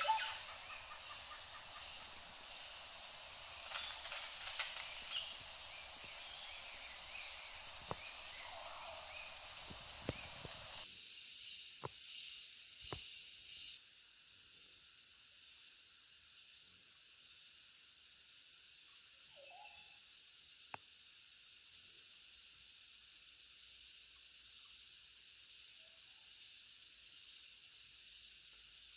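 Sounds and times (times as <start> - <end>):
forest stream running: 0.0 - 11.8.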